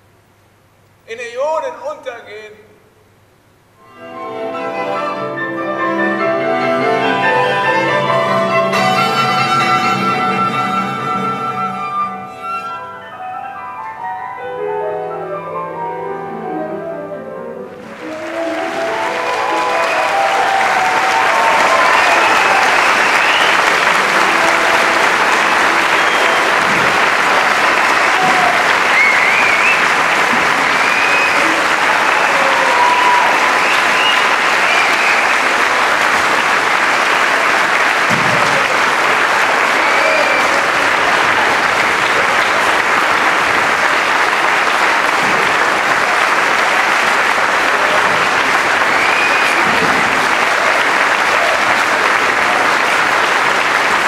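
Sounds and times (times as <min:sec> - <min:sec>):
audience applauding: 0:17.7 - 0:54.0.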